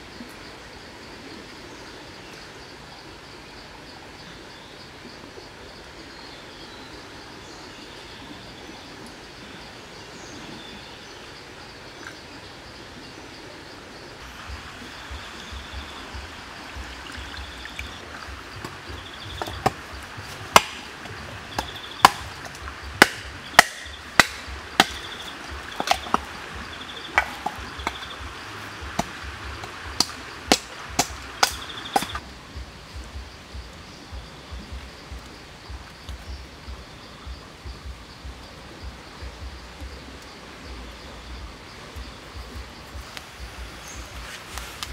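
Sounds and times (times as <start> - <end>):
insects trilling: 0.0 - 44.9
knife chopping wood: 19.4 - 26.3, 27.1 - 28.1, 28.9 - 32.2.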